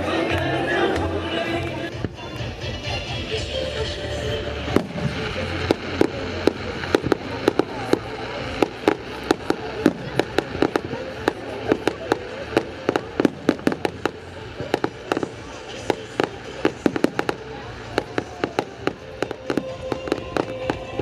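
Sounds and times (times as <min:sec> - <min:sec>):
fireworks bangs and pops: 0:04.7 - 0:21.0.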